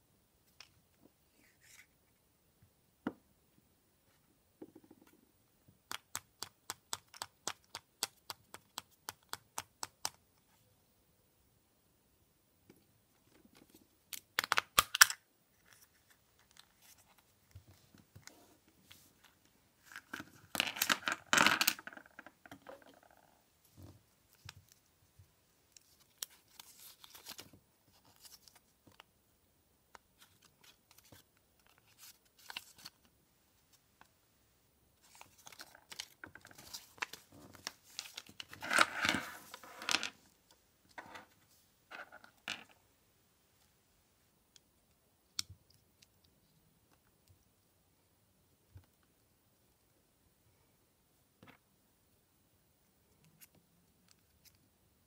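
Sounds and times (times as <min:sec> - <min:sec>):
plastic capsule snapping open: 0:14.1 - 0:15.2.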